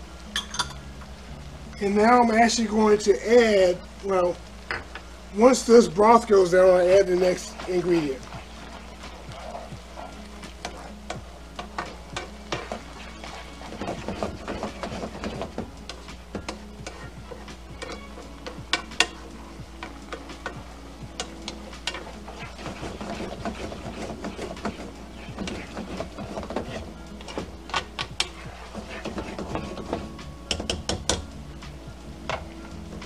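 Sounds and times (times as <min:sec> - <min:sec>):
rice simmering: 0:00.0 - 0:33.0
spoon scraping metal pan: 0:07.4 - 0:20.6, 0:21.2 - 0:31.2.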